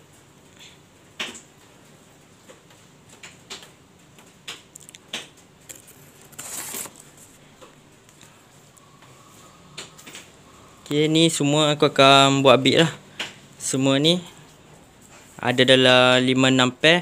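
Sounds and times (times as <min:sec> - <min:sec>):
glass fish tanks clicking: 0:02.6 - 0:06.3
cardboard scraping rustle: 0:05.7 - 0:07.4.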